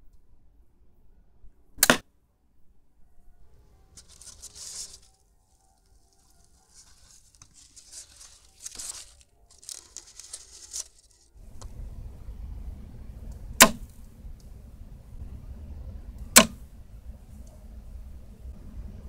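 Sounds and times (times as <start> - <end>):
crossbow shot crack: 1.8 - 2.0, 13.6 - 13.9, 16.4 - 16.6
low background rumble: 3.2 - 19.0
hands handling cardboard and styrofoam: 4.0 - 11.3.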